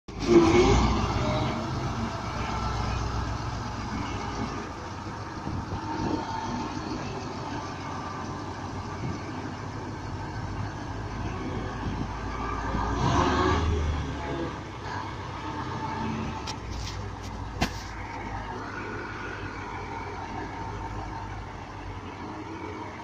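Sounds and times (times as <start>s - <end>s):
diesel truck engine rumbling: 0.0s - 23.0s.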